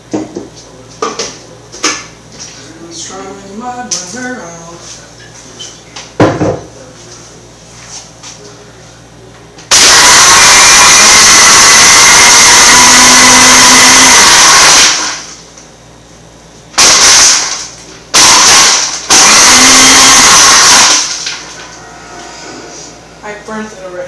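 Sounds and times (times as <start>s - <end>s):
blender running: 9.7s - 15.4s, 16.8s - 21.6s.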